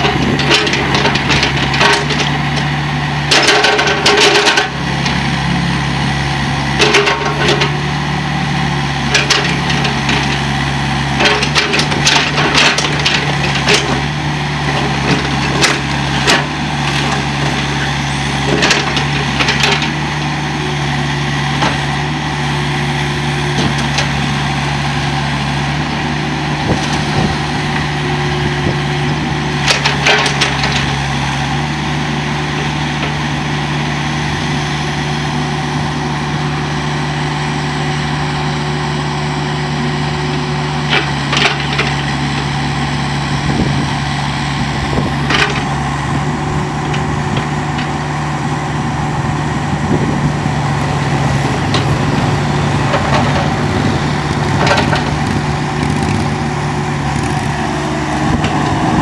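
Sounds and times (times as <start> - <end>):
excavator diesel engine running: 0.0 - 59.0.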